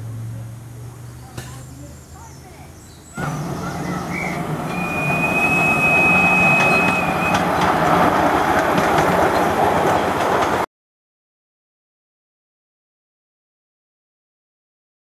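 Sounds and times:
thin high steady tone: 3.2s - 7.4s
wheels clattering on rails: 3.2s - 10.7s.

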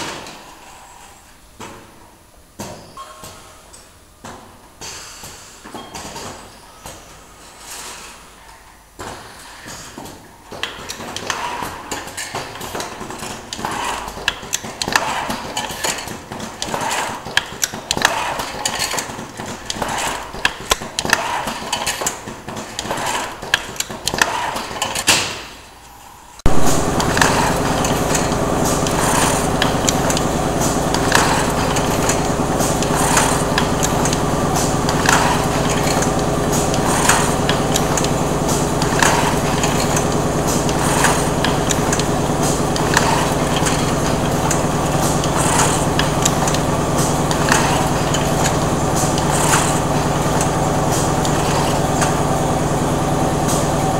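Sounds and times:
pneumatic machine clacks and knocks: 4.2s - 8.2s, 9.0s - 25.6s, 26.4s - 53.9s
loud steady machine hum: 26.4s - 53.9s.

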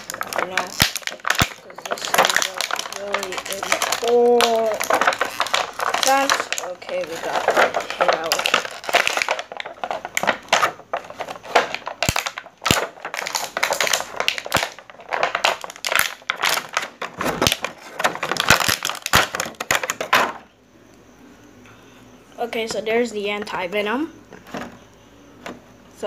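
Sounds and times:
plastic bag crinkling: 0.0s - 20.5s.

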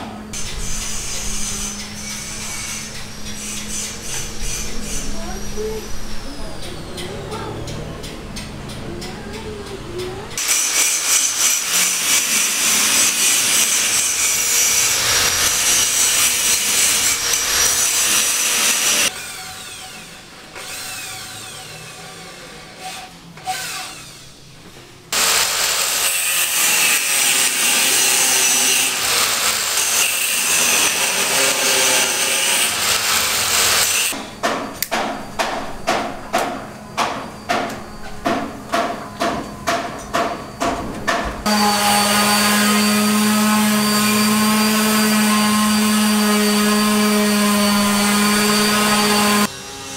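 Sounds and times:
rhythmic tool strokes: 0.3s - 5.4s, 10.0s - 20.0s, 25.1s - 34.2s, 41.4s - 49.9s
power tool running: 10.4s - 24.3s, 25.1s - 34.2s, 41.4s - 49.9s.

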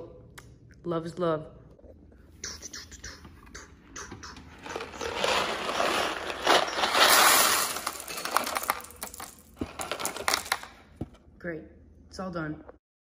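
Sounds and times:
dry pasta rattling into bin: 4.6s - 10.8s.

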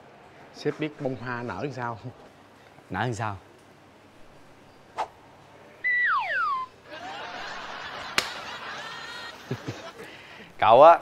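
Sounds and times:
falling whistle: 5.8s - 6.8s.

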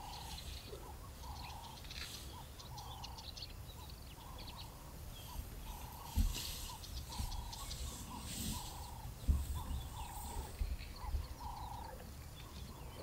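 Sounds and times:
bird calling low notes: 0.0s - 13.0s
low rumbling thumps: 5.6s - 11.8s.

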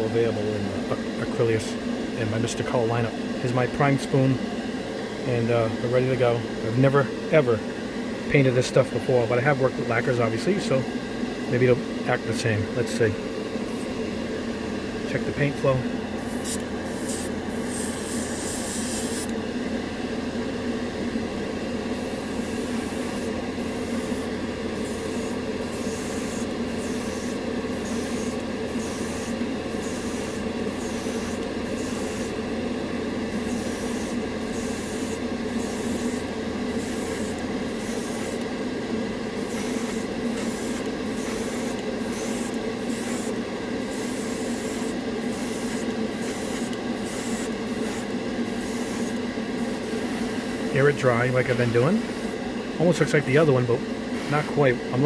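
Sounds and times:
steady motor hum: 0.0s - 55.0s
airbrush spraying bursts of hiss: 16.2s - 19.3s, 21.9s - 32.4s, 33.3s - 38.4s, 39.4s - 50.6s, 54.2s - 54.5s.

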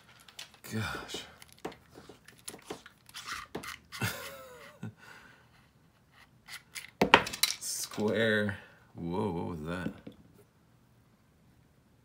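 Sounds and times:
metal parts clicking and scraping: 1.4s - 4.4s, 6.2s - 8.2s.

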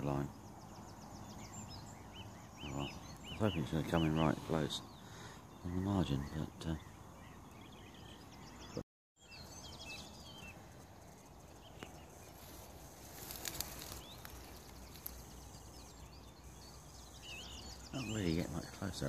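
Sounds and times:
small birds twittering: 0.0s - 19.0s
background hiss: 9.2s - 19.0s.

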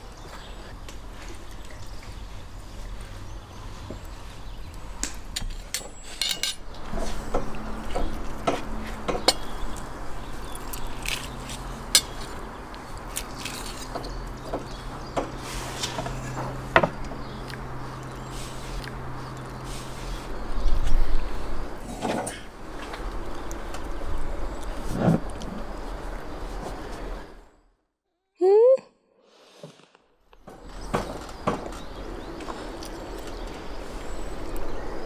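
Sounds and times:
cutlery clinking on ceramic plates: 6.1s - 6.6s.

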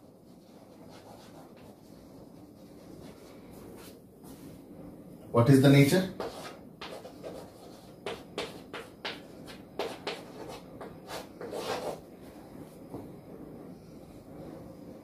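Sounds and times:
chalk tapping and scratching: 0.0s - 4.4s, 6.1s - 12.0s
chalk scraping on blackboard: 0.1s - 4.0s, 6.2s - 12.0s.

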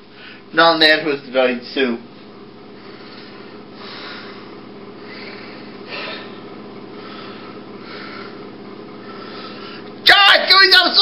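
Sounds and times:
low electrical hum: 0.0s - 11.0s
man breathing close to microphone: 2.7s - 9.9s.

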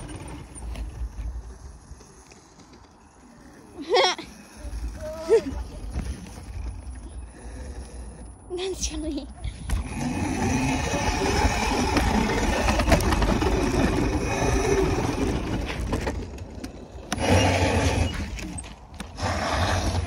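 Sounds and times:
bike rattling over dirt: 0.0s - 7.8s, 9.6s - 20.0s.

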